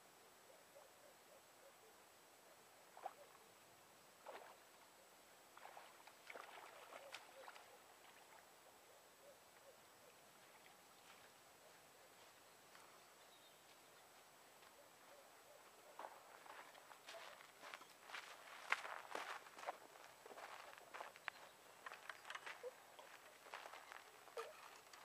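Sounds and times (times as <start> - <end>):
fish splashing in water: 5.6 - 7.6.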